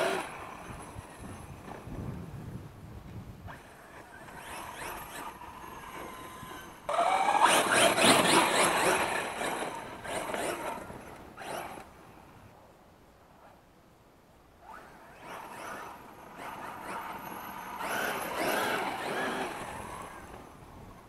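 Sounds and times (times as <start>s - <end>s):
electric motor whine: 4.1s - 11.9s, 14.9s - 20.9s.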